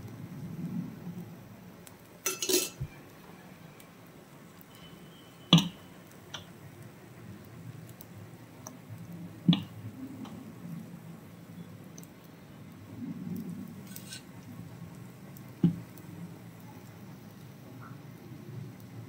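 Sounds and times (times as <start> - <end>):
kitchen utensils clinking: 2.3 - 3.0.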